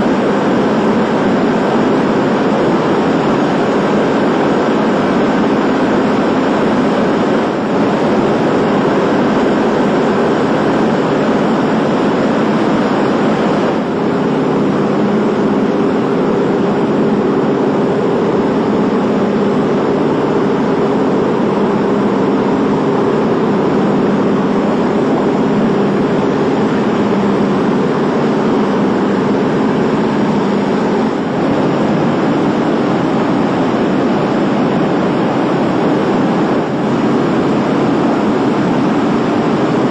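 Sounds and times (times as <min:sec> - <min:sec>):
propeller plane engines droning: 0:00.0 - 0:39.9.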